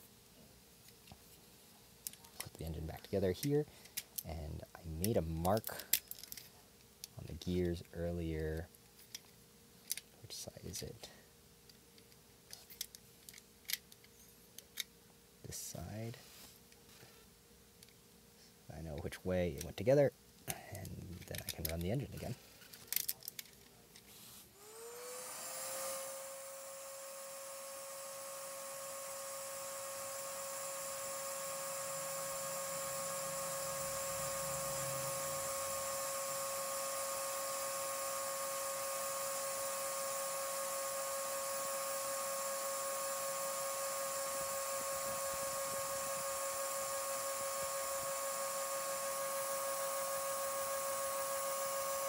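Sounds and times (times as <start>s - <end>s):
toy piston engine running: 24.6s - 52.0s
vacuum cleaner motor whine: 24.6s - 52.0s.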